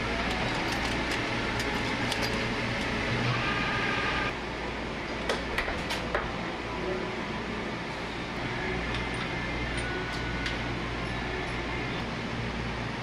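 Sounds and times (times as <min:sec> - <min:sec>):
metal tools clinking in drawer: 0:00.0 - 0:02.9
machine-shop hum: 0:00.0 - 0:13.0.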